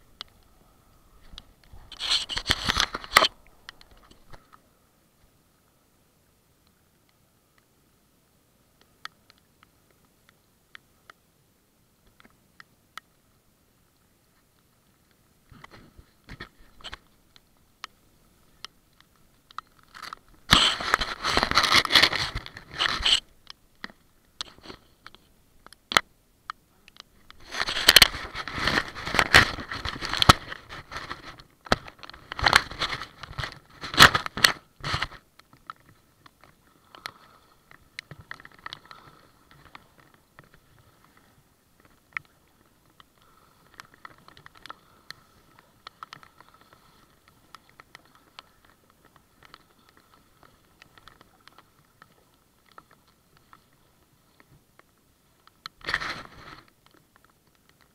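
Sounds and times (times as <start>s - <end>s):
faint ticks: 0.1s - 0.6s, 1.2s - 5.3s, 8.7s - 11.3s, 11.9s - 20.7s, 22.3s - 28.1s, 30.2s - 57.9s
hand scraping camera: 1.2s - 4.4s, 19.6s - 23.3s, 27.3s - 35.3s.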